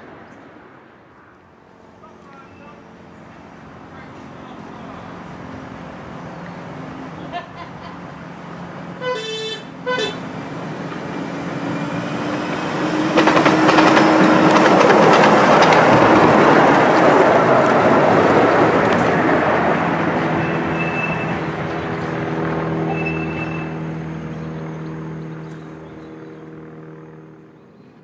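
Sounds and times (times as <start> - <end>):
train horn toots: 9.0 - 10.3, 20.3 - 21.4, 22.9 - 23.8
train wheels clattering over rails: 10.5 - 23.5.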